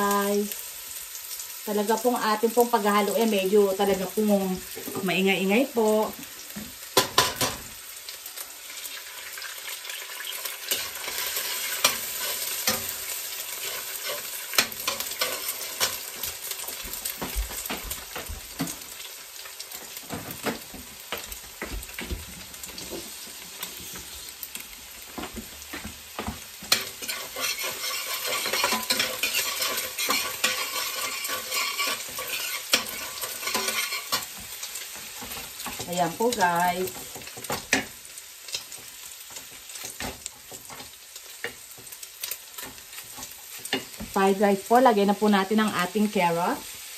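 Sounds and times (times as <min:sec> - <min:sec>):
garlic and onion sizzling in oil: 0:00.0 - 0:46.9
metal spatula scraping a pan: 0:10.6 - 0:16.8, 0:26.7 - 0:36.0.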